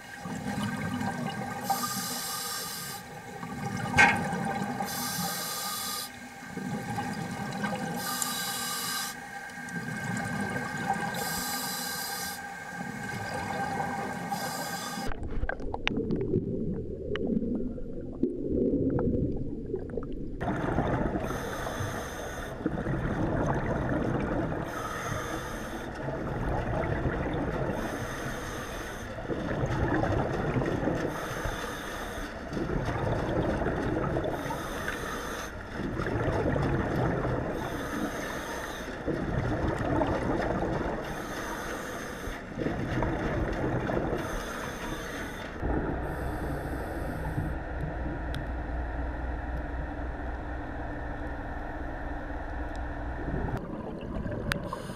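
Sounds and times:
exhaled bubbles gushing: 0.0 - 1.7, 3.2 - 4.9, 6.2 - 8.0, 9.5 - 11.4, 12.7 - 21.8, 22.5 - 24.8, 26.0 - 28.1, 29.2 - 31.4, 32.4 - 41.2, 42.4 - 44.9, 45.6 - 46.5, 53.2 - 54.9
steady low hum: 0.0 - 54.9
regulator breathing hiss: 1.6 - 3.1, 4.8 - 6.2, 8.0 - 9.2, 11.2 - 12.6, 14.2 - 15.1, 21.3 - 22.6, 24.6 - 26.0, 27.8 - 29.2, 31.1 - 32.4, 34.4 - 35.6, 37.6 - 39.0, 41.0 - 42.5, 44.2 - 47.6.

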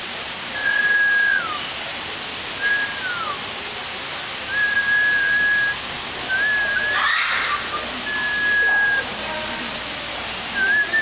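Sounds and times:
long whistled notes: 0.6 - 1.6, 2.6 - 3.4, 4.5 - 7.0, 8.0 - 9.1.

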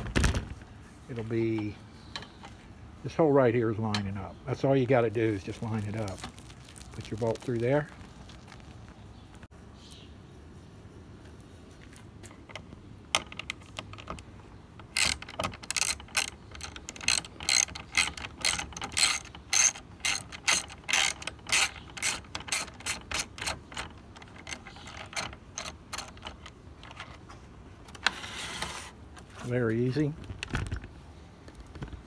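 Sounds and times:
socket ratchet clicking: 14.8 - 27.0.

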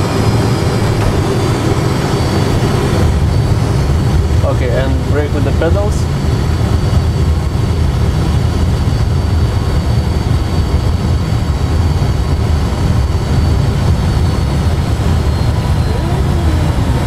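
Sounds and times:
engines and runway roll rumble: 0.0 - 17.0.

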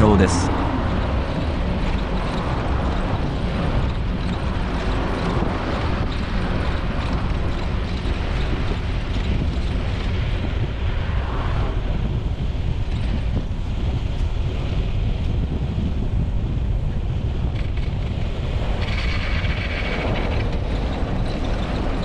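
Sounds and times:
road traffic rumble: 0.0 - 12.6
wind noise on microphone: 0.0 - 22.0.

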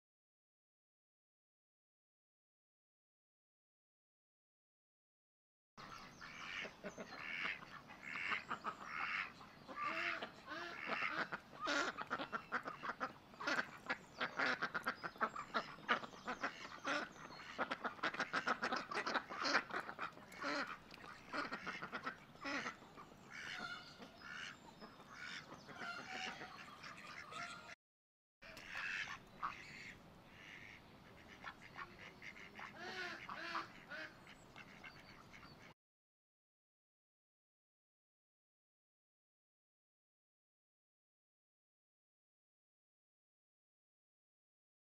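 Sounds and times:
ducks quacking: 5.8 - 27.8, 28.4 - 35.8
chickens clucking: 6.5 - 27.8.

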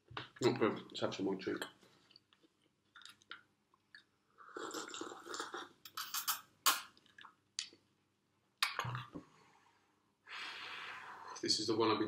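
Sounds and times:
person sipping a drink: 3.0 - 7.4.

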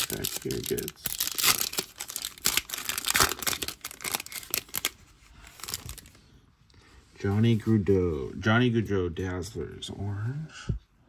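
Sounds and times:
foil pack tearing and crinkling: 0.0 - 6.1.

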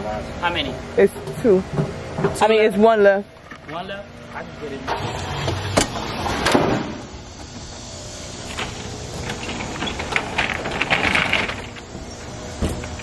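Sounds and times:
thump: 5.8 - 7.0
metallic rattling and scraping: 8.2 - 13.0.

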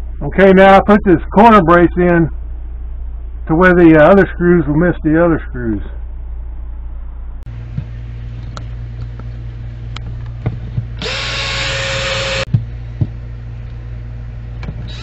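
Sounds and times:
steady low hum: 0.0 - 15.0
cordless drill driving screw: 11.0 - 12.5.

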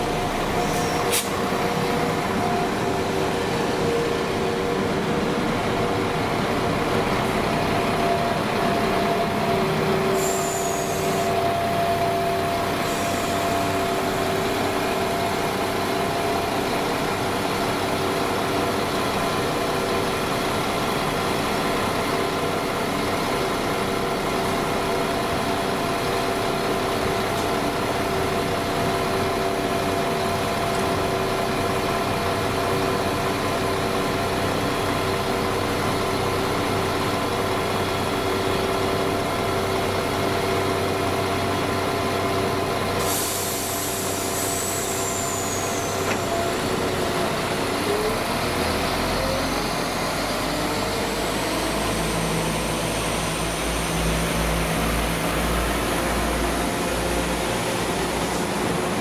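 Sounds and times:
diesel engines idling hum: 0.0 - 59.0
high air hiss: 10.1 - 11.3, 43.0 - 46.1.

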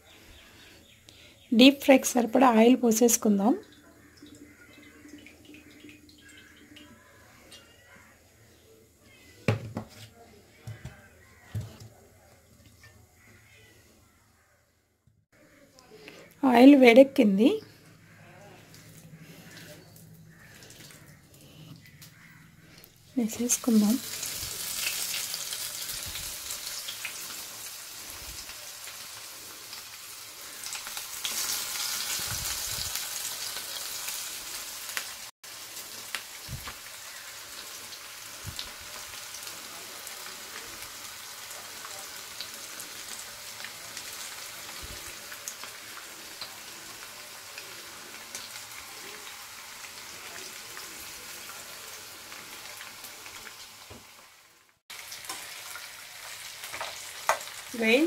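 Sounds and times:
food deep-frying in hot oil: 1.6 - 8.4, 23.2 - 58.0.

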